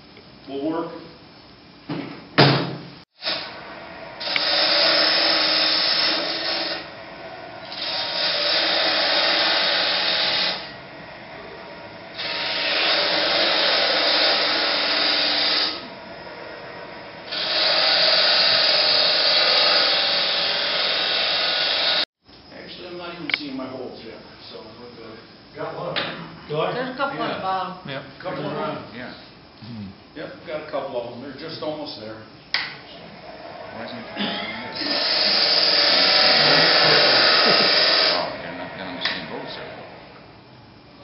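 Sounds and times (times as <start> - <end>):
lathe humming: 3.2 - 22.1, 32.9 - 41.0
turning tool cutting wood: 4.2 - 6.9, 7.6 - 10.8, 12.1 - 16.0, 17.2 - 22.0, 33.6 - 40.0.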